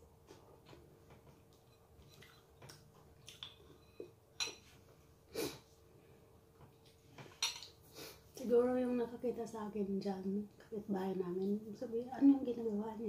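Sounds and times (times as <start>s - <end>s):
faint steady hum: 0.0s - 13.0s
person chewing bread: 0.2s - 4.0s
short sniffs: 5.3s - 5.7s, 7.9s - 8.3s.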